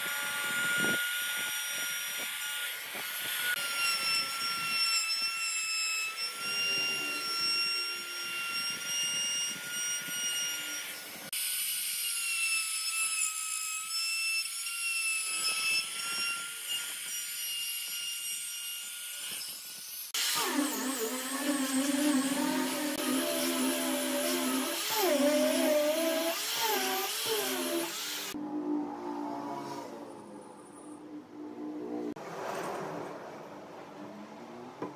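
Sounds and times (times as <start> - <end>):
trim router whining into wood: 0.0 - 5.4, 19.4 - 28.4
sanding disc humming on wood: 20.2 - 28.4.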